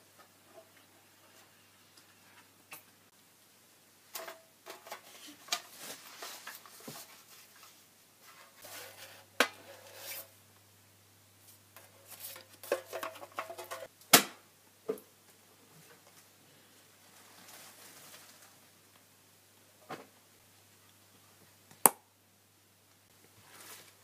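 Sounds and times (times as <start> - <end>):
rustling of handled objects: 4.0 - 10.4, 11.4 - 13.9, 15.7 - 18.8.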